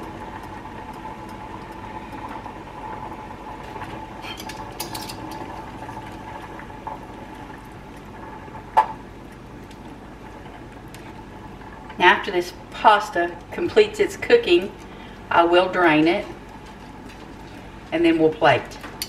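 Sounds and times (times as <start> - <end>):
sauce simmering and water boiling: 0.0 - 19.0
metal utensil clinking on pot: 4.2 - 5.5
light crackles: 4.6 - 12.0.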